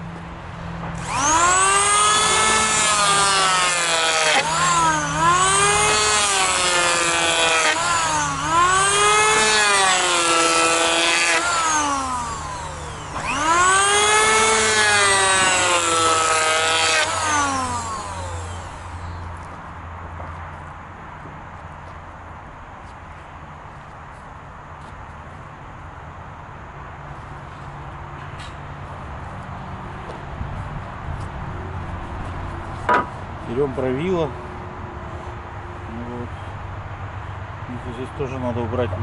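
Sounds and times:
electric planer shaving wood: 0:01.0 - 0:19.6.

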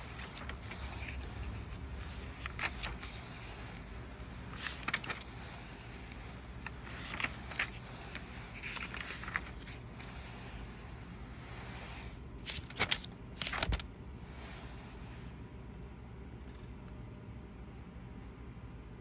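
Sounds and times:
notebook pages turning: 0:00.0 - 0:10.8, 0:11.6 - 0:13.9
low steady hum: 0:00.0 - 0:19.0.

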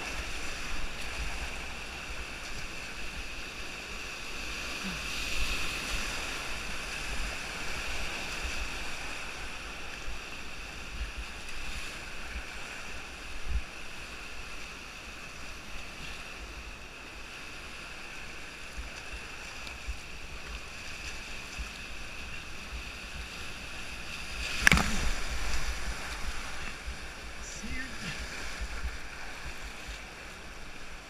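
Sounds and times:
water and wind bumps on camera: 0:00.0 - 0:31.0
wave splashing over bow: 0:18.7 - 0:31.0
whitewater rapids rushing: 0:23.7 - 0:29.4.

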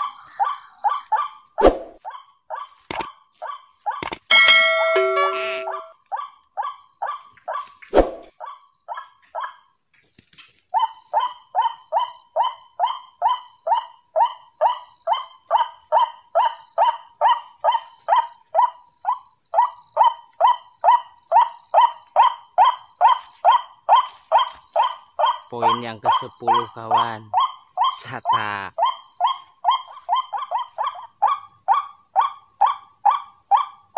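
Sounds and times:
thin steady high tone: 0:04.3 - 0:05.9.

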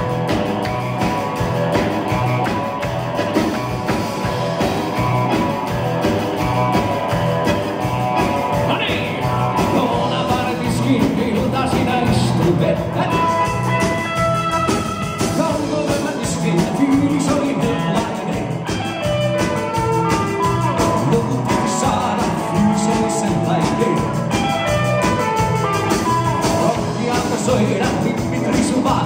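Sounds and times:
drum kit: 0:00.0 - 0:29.0
electric guitar: 0:00.0 - 0:29.0
accordion: 0:12.0 - 0:29.0.

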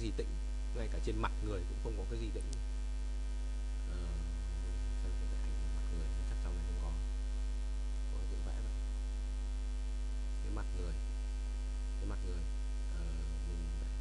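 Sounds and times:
electrical mains hum: 0:00.0 - 0:14.0
faint voice murmurs: 0:03.9 - 0:07.0, 0:12.0 - 0:13.9.

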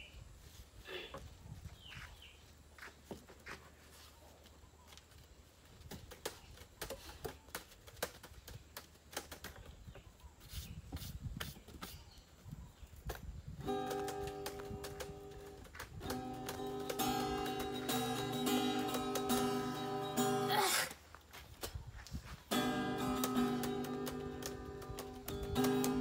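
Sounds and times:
sharp clicks and knocks: 0:13.1 - 0:19.7.

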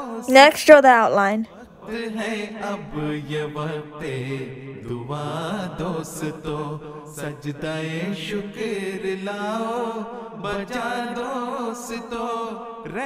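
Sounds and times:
man singing chant-like melody: 0:01.6 - 0:13.0.

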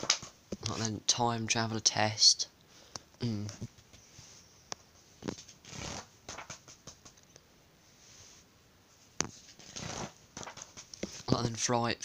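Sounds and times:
paper pages rustling: 0:05.2 - 0:07.2, 0:09.2 - 0:11.3.

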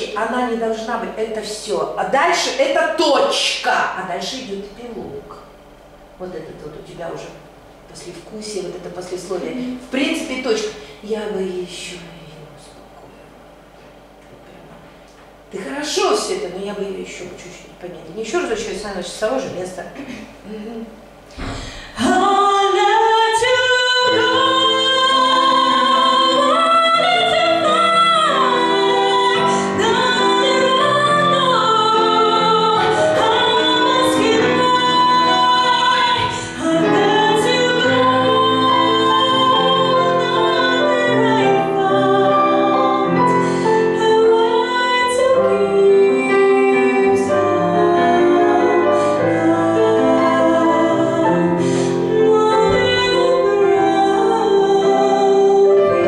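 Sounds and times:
woman singing ballad: 0:20.7 - 0:56.0
digital piano chords: 0:23.6 - 0:56.0.

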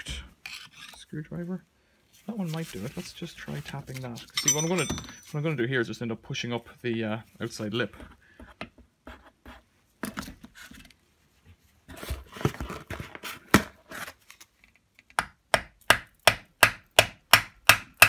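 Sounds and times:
screwdriver scraping on rubber seal: 0:00.0 - 0:01.1.

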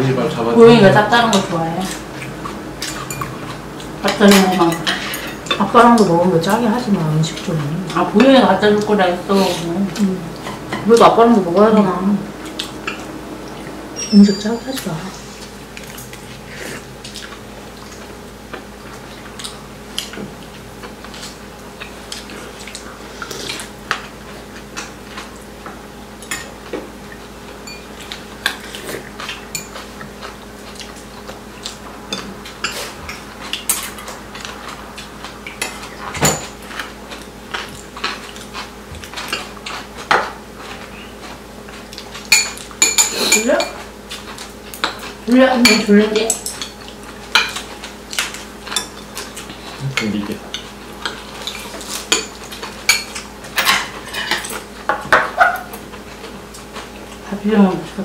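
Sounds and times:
spoons clinking against ceramic bowls: 0:02.8 - 0:06.1, 0:27.6 - 0:28.2, 0:29.5 - 0:29.9, 0:42.3 - 0:43.8.

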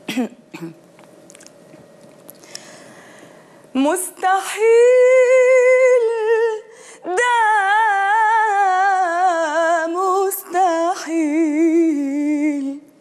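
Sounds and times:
woman singing unaccompanied: 0:03.8 - 0:13.0.

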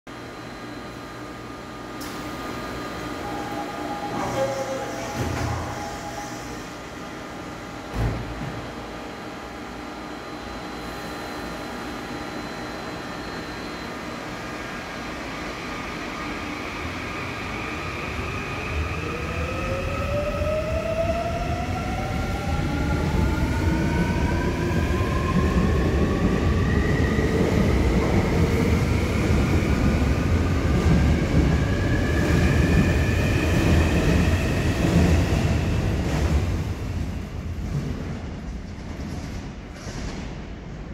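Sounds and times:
rumble of wheels on track: 0:18.9 - 0:40.9.

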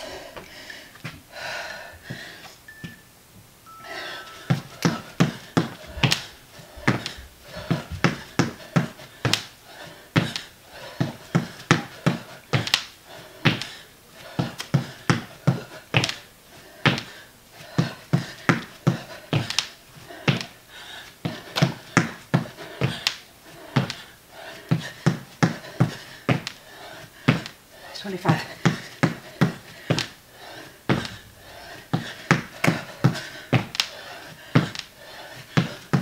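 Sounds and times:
feet thumping on floor: 0:04.2 - 0:09.5, 0:10.2 - 0:12.9, 0:13.5 - 0:16.2, 0:16.9 - 0:20.6, 0:21.3 - 0:24.0, 0:24.7 - 0:26.6, 0:27.2 - 0:27.6, 0:28.3 - 0:30.2, 0:30.9 - 0:31.3, 0:31.9 - 0:34.9, 0:35.5 - 0:36.0.

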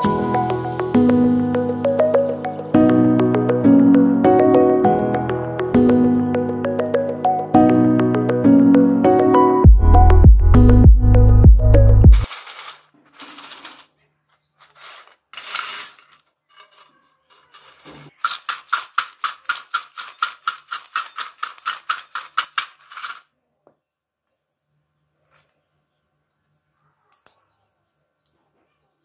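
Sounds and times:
chips rattling in a steel bowl: 0:12.3 - 0:13.9, 0:14.6 - 0:23.3.

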